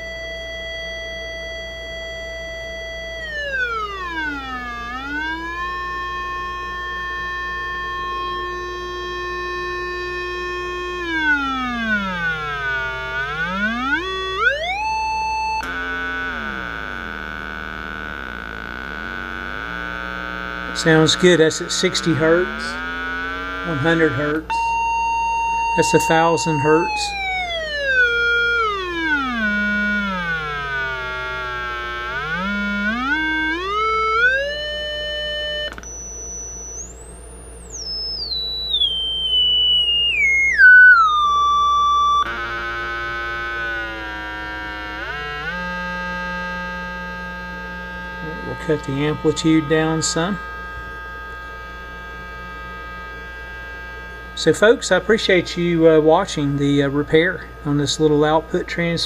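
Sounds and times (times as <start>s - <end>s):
test tone sweeping in pitch: 0.0s - 59.0s
click: 15.6s - 15.8s, 35.7s - 36.0s.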